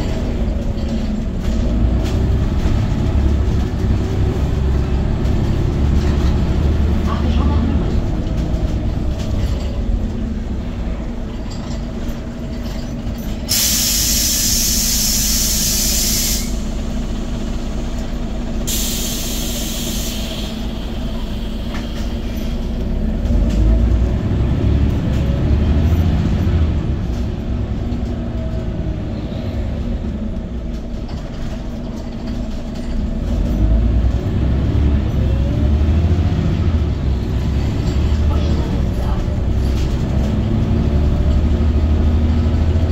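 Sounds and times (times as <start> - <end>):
bus engine drone: 0.0 - 42.9
compressed air hiss: 13.5 - 16.7, 18.7 - 21.7.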